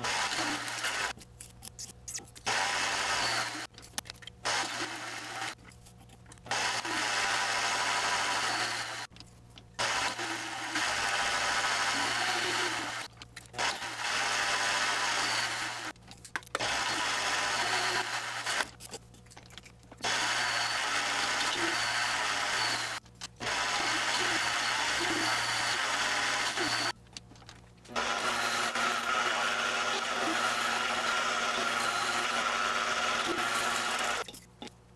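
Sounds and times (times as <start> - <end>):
lathe cutting metal: 2.5 - 3.7, 6.5 - 9.1, 9.8 - 15.9, 20.1 - 26.9, 28.0 - 34.2
lathe motor humming: 20.1 - 26.9, 27.9 - 34.2.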